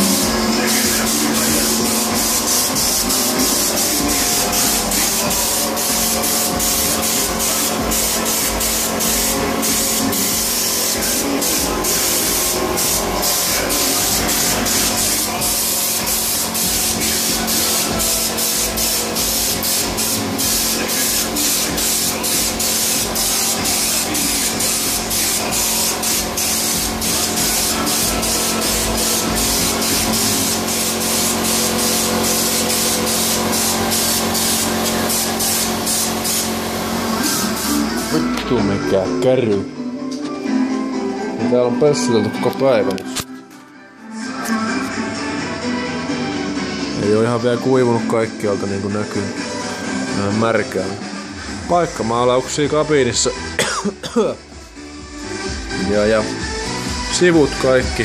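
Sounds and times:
steady low hum: 0.0s - 19.5s
spray gun hissing: 0.0s - 38.4s.

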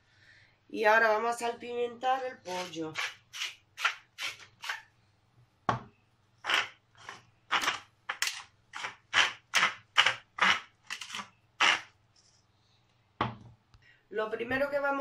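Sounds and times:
pepper grinder crunching: 6.4s - 11.9s.

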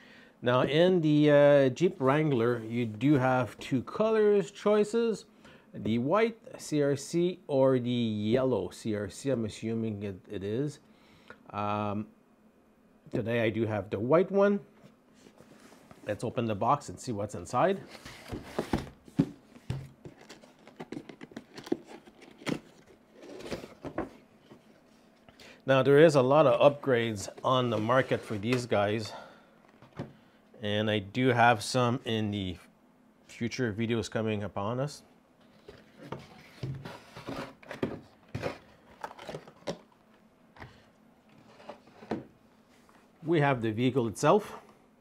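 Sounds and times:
cardboard rustling and scraping: 17.7s - 25.2s, 26.8s - 28.8s, 35.4s - 39.9s, 41.3s - 43.0s.

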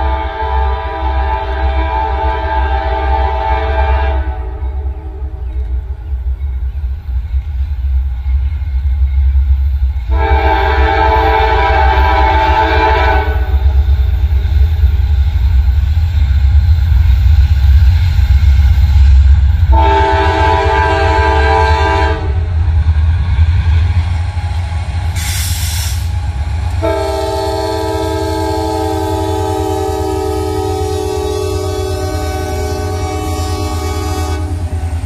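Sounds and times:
multi-note air horn blasts: 0.0s - 5.3s, 10.1s - 13.5s, 19.7s - 22.5s, 26.8s - 34.7s
diesel locomotive engines rumbling: 0.0s - 35.0s
brief hiss: 25.2s - 26.2s.

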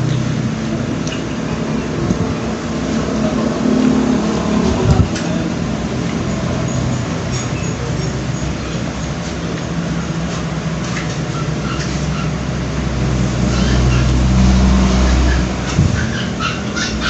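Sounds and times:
vehicle engine rumble: 0.0s - 17.0s
eating clicks: 1.0s - 1.3s.

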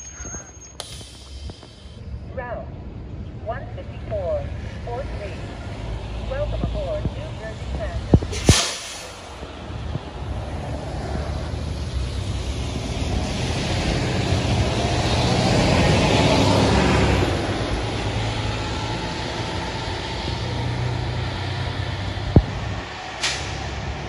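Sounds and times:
bus engine drone: 0.0s - 24.0s
tyre hiss on wet road: 0.8s - 2.0s, 8.3s - 9.3s.

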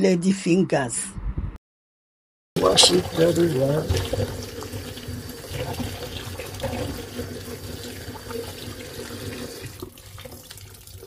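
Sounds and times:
tap running into plastic basin: 2.6s - 11.0s.

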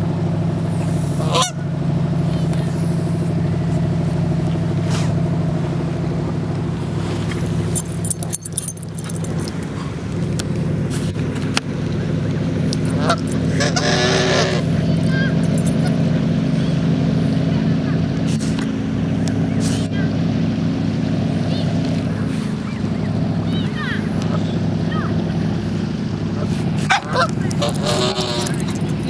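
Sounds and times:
geese honking: 1.2s - 1.6s, 12.8s - 15.4s, 26.4s - 29.0s.

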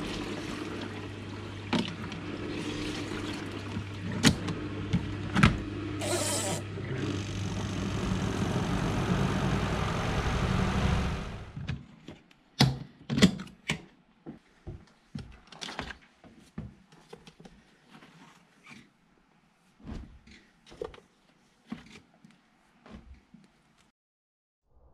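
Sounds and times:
spin dryer motor hum: 0.0s - 11.7s.

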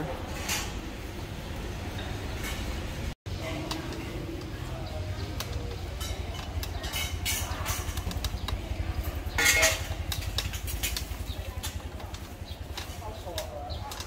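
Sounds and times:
wind and road noise: 0.0s - 14.0s
scattered clicks: 3.6s - 14.0s.

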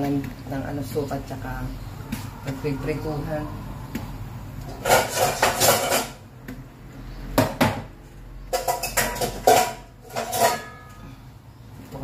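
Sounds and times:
metal pots and pans clanking: 4.7s - 6.3s, 7.4s - 11.0s.

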